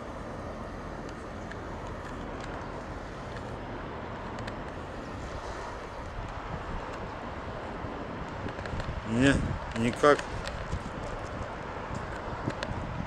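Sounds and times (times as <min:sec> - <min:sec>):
constant street background rush: 0:00.0 - 0:13.0.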